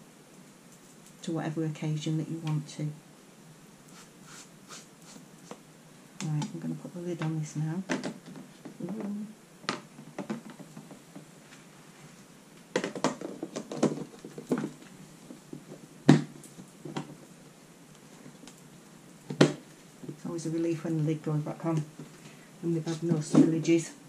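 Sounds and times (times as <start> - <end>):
plastic lid clicking and knocking: 12.8 - 14.7.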